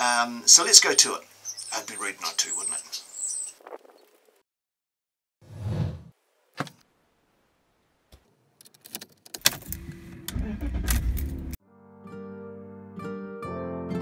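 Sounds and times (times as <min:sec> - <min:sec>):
car engine cranking and starting: 0:09.4 - 0:11.6.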